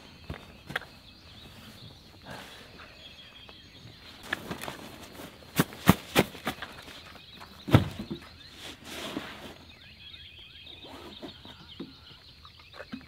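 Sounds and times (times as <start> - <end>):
camp gear knocking and clunking: 3.5 - 8.5.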